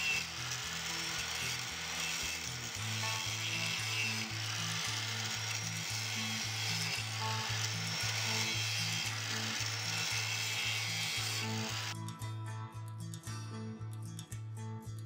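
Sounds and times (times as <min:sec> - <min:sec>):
angle grinder grinding metal: 0:00.0 - 0:12.0
background music with beat: 0:11.9 - 0:15.0.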